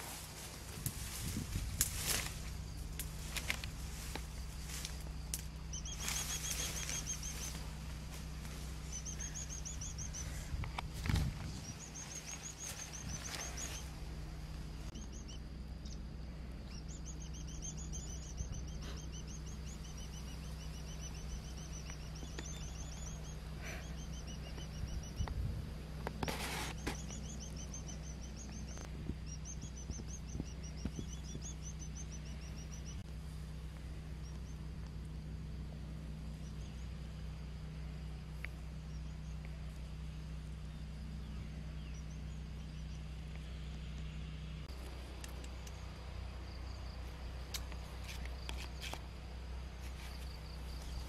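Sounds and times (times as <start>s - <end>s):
insect trill: 0.0s - 51.0s
low background hum: 0.0s - 51.0s
low rumble: 0.0s - 51.0s
bird chirping rapidly: 4.0s - 10.7s, 11.3s - 16.0s, 16.6s - 25.3s, 26.2s - 33.0s.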